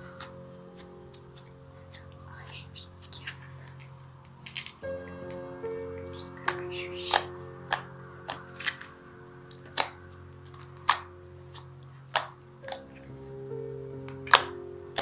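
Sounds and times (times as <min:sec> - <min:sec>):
quiet background music: 0:00.0 - 0:15.0
slime popping and clicking: 0:09.5 - 0:12.8.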